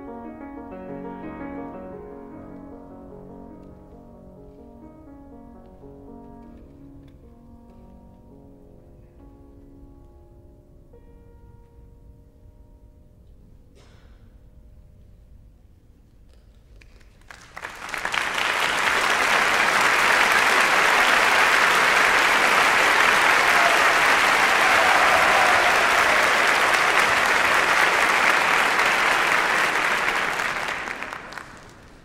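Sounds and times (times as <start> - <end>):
audience applauding: 16.8 - 32.0.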